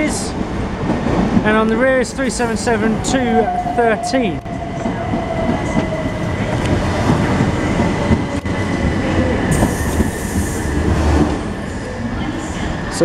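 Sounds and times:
train wheels rumbling on rails: 0.0 - 13.0
hiss: 9.5 - 10.8.

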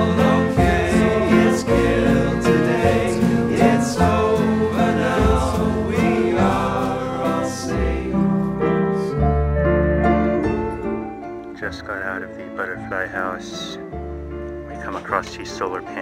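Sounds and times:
song with singing: 0.0 - 9.2.

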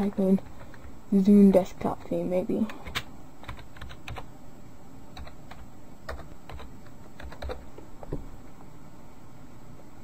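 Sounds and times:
keyboard keystrokes: 2.8 - 4.3, 5.2 - 7.6.

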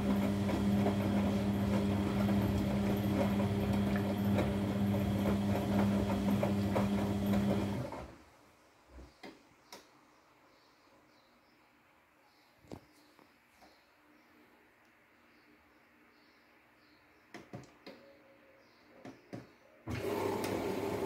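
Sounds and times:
washing machine drum humming: 0.0 - 8.1, 19.9 - 21.0.

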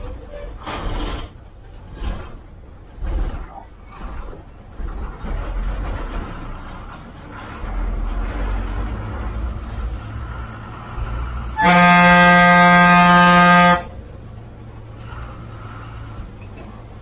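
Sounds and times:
bus engine running: 0.0 - 17.0
bus horn blast: 11.4 - 14.2.

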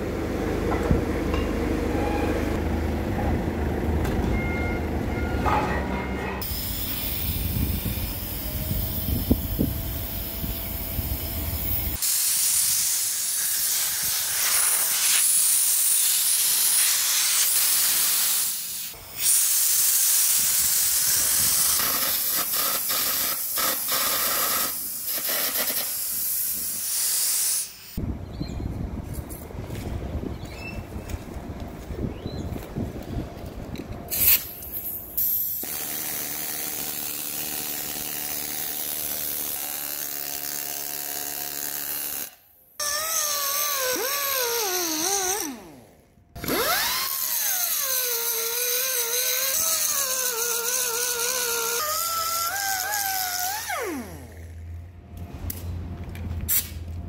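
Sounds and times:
arc gouging hiss: 6.4 - 28.0.

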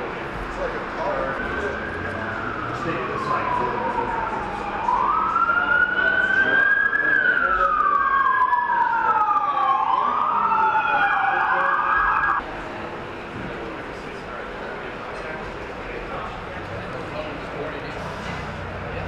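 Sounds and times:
fire engine siren wailing: 0.0 - 12.4.

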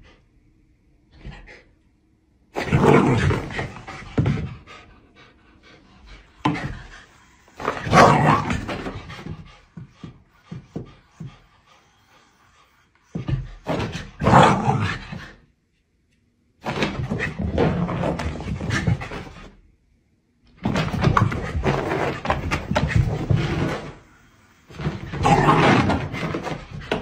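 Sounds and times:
dog panting and vocalizing: 8.7 - 13.6.

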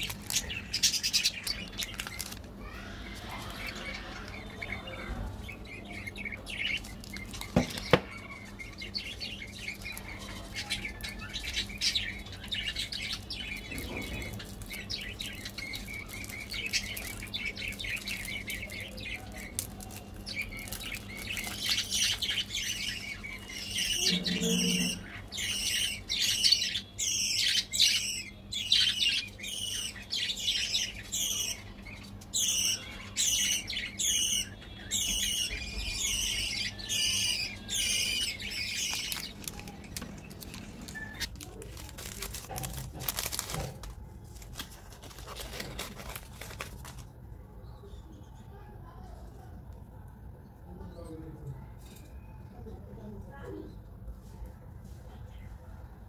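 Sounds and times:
birds chirping: 0.0 - 43.8.

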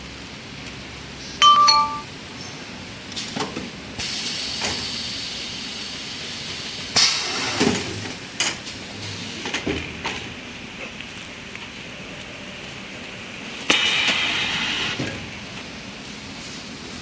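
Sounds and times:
two-note beep: 1.4 - 2.1
machine hissing: 4.0 - 8.0, 13.7 - 15.1.

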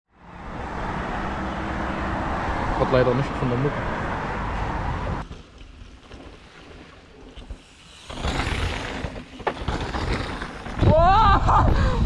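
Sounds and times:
bike tyres rumbling on dirt: 5.2 - 12.0
wind rushing over microphone: 10.1 - 12.0.

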